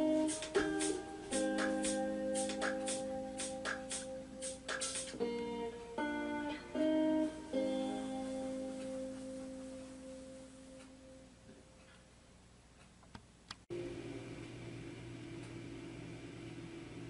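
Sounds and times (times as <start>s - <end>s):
plucked guitar chords: 0.0s - 11.4s.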